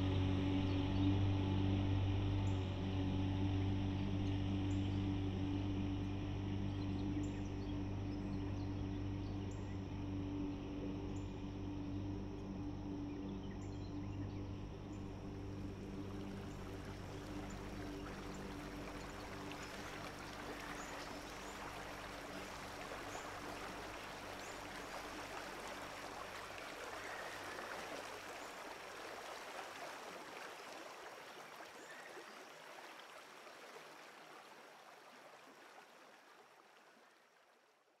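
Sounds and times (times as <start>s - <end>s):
low steady hum: 0.0s - 30.4s
river water rushing: 15.0s - 37.2s.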